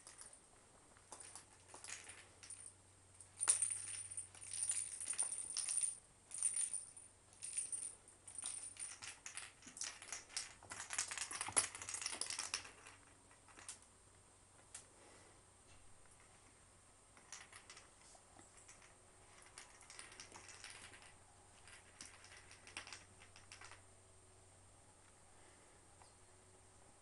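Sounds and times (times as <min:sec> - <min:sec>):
toy balls jingling and rattling: 0:00.0 - 0:00.4, 0:01.1 - 0:13.7, 0:17.2 - 0:23.8.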